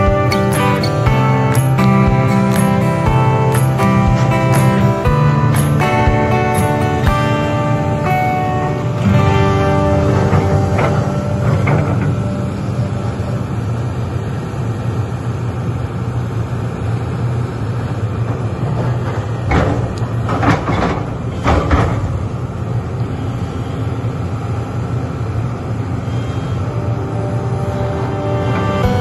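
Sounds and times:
excavator bucket working: 0.0 - 16.0, 17.6 - 23.2
excavator diesel engine running: 0.0 - 29.0.

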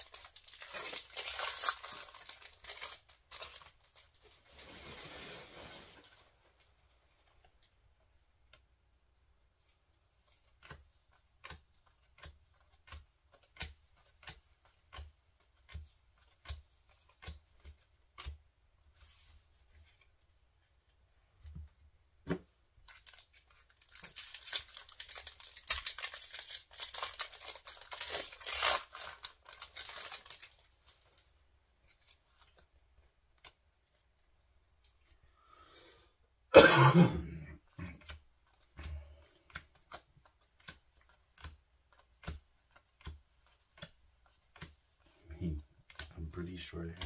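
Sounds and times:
foil wrapper tearing: 0.0 - 4.1, 22.9 - 31.0
cards tapping: 10.3 - 18.4, 38.0 - 45.2.

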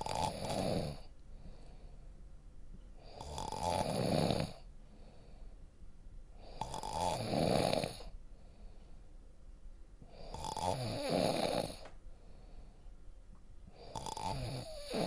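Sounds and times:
man snoring: 0.0 - 1.1, 3.0 - 4.7, 6.4 - 8.1, 10.1 - 11.8, 13.8 - 15.0
faint breathing: 0.9 - 3.3, 4.5 - 6.8, 7.9 - 9.2, 11.6 - 14.1.

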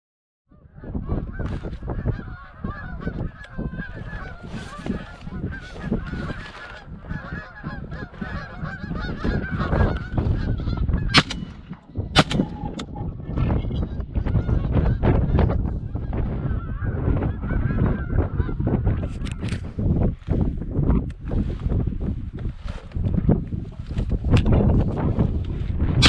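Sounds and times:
geese honking: 0.8 - 12.8
sharp cracks: 11.2 - 12.9.

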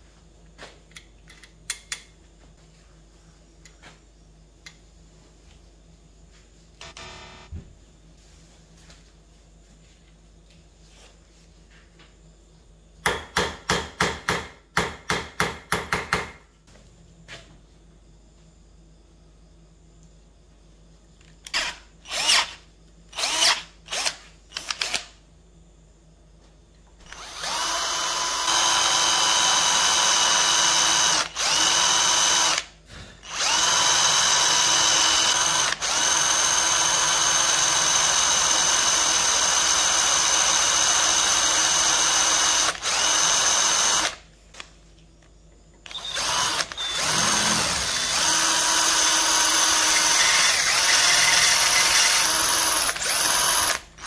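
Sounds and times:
electric drill whining: 6.8 - 7.6, 21.5 - 25.1, 27.0 - 44.2, 45.9 - 54.0.

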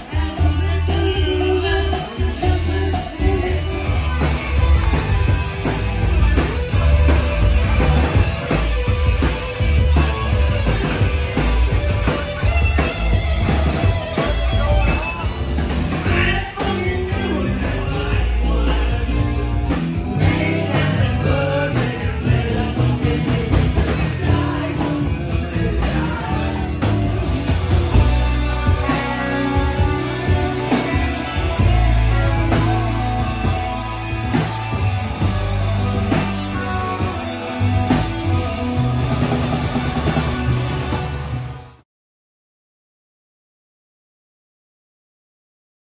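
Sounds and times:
person singing: 0.0 - 5.5, 14.2 - 39.4
crowd: 0.0 - 41.8
drum kit: 0.0 - 41.8
electric guitar: 0.0 - 41.8
keyboard: 0.0 - 41.8.

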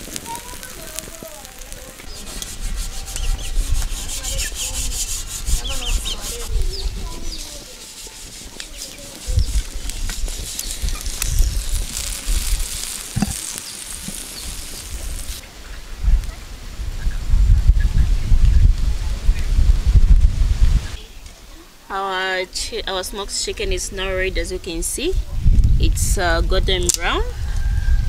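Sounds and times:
chicken sizzling and popping: 0.0 - 15.5, 25.5 - 28.0
wind rumbling on microphone: 0.0 - 21.6, 22.8 - 28.0.

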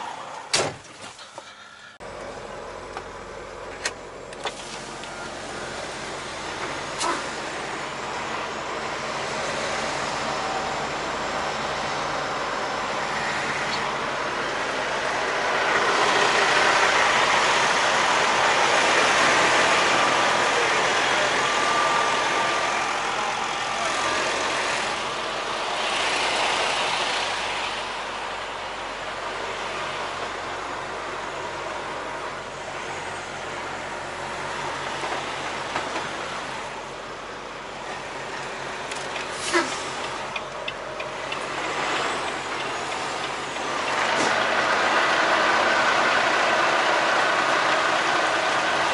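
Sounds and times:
road traffic hiss: 0.0 - 48.9
truck engine hum: 0.0 - 48.9.

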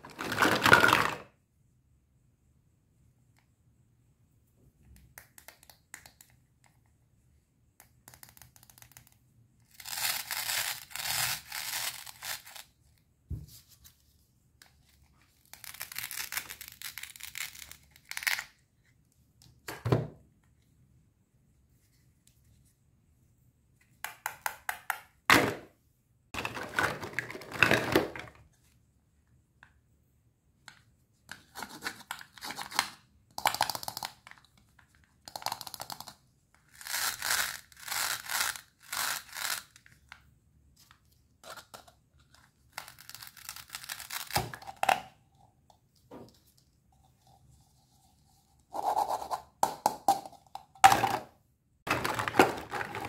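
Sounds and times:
toy pieces knocking: 33.4 - 34.2, 35.3 - 36.2, 51.9 - 53.0.

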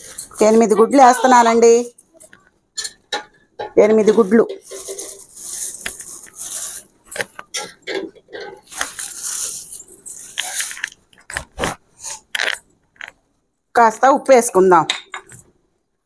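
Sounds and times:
plastic bag crinkling: 4.6 - 7.4, 8.7 - 11.0.

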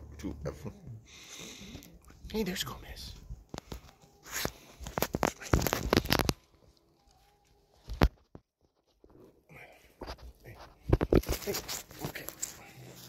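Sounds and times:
fur rustling against microphone: 10.2 - 13.0.

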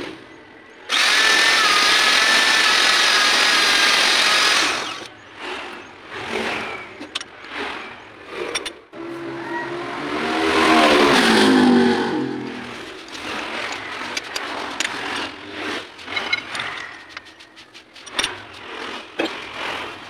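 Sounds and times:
electric motor winding down: 0.9 - 5.1
metallic clinks and knocks: 16.0 - 18.6.

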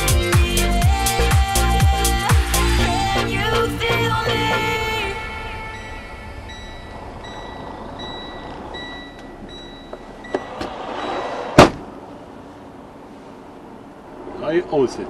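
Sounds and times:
truck door slamming: 9.6 - 12.0.

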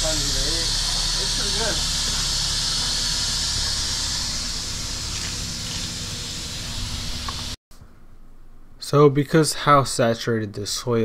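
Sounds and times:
steady hiss: 0.0 - 7.6.

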